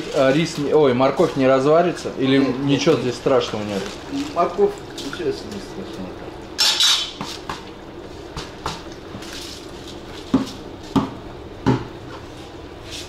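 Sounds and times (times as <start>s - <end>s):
knocks against metal pot: 10.3s - 11.9s.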